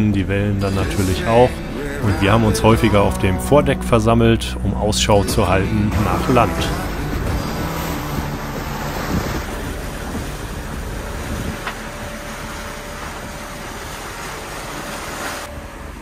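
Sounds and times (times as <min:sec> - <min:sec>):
sea noise: 0:00.0 - 0:16.0
wind rumbling on microphone: 0:04.7 - 0:16.0
wind: 0:05.9 - 0:16.0.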